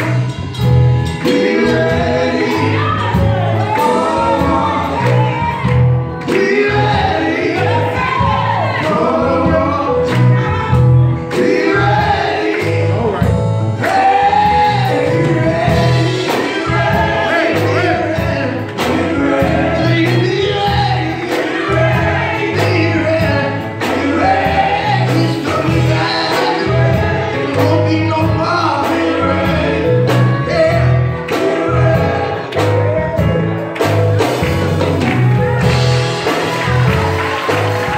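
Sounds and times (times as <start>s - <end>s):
drum kit beat: 0.0s - 37.9s
guitar: 0.0s - 37.9s
men singing gospel song: 0.0s - 37.9s.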